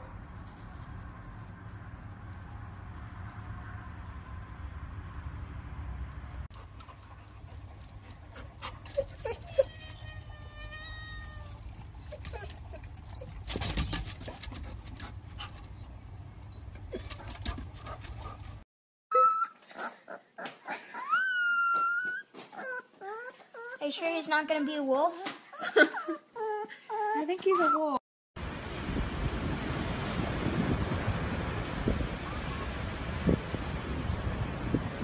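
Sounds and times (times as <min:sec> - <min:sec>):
puppy whining: 0:08.7 - 0:13.9, 0:19.1 - 0:28.0
puppy howling and yelping: 0:08.9 - 0:13.4, 0:19.1 - 0:19.9, 0:20.9 - 0:23.8, 0:25.5 - 0:27.9.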